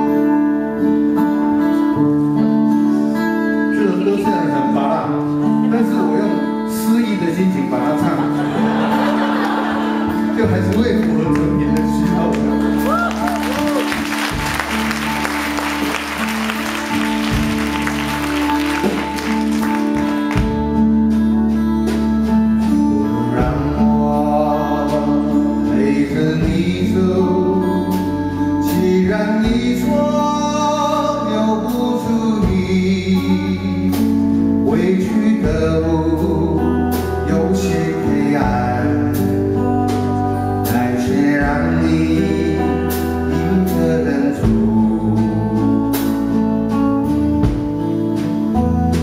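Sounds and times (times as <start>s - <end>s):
instrumental accompaniment: 0.0s - 49.0s
man singing into microphone: 23.0s - 46.7s.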